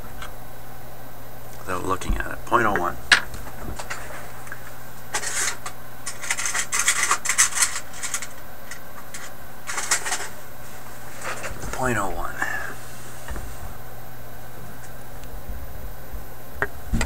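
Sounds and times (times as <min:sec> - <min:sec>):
steady low hum: 0:00.0 - 0:17.0
small objects rustling and clattering: 0:03.2 - 0:10.4.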